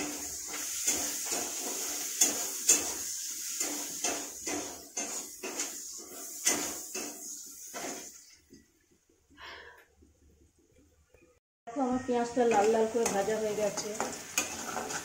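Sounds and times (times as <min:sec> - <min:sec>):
spatula scraping metal pan: 0:00.0 - 0:08.1, 0:12.5 - 0:15.0
onions sizzling in oil: 0:00.0 - 0:08.3, 0:11.8 - 0:15.0.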